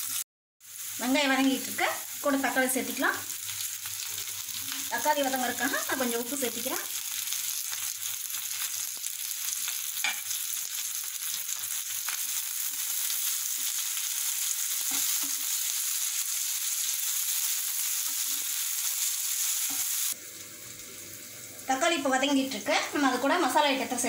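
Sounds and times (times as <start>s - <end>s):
vegetables sizzling in oil: 0.0s - 24.0s
spatula scraping and tapping pan: 10.0s - 10.3s.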